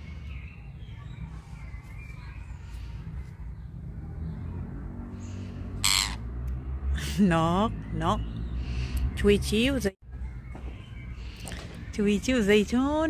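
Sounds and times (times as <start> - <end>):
faint bird chirps: 0.0 - 5.5.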